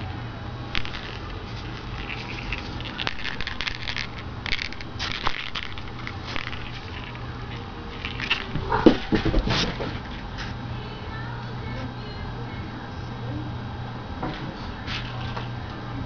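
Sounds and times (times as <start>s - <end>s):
steady low hum: 0.0s - 16.0s
rustling handling noise: 0.7s - 10.6s.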